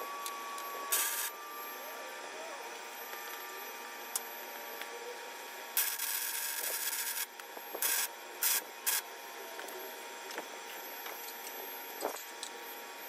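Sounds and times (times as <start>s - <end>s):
welding arc sizzling: 0.0s - 4.9s, 5.8s - 9.7s.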